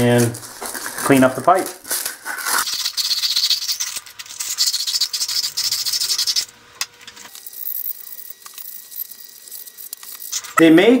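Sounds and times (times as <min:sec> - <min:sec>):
sandpaper rubbing copper pipe: 0:02.2 - 0:06.5.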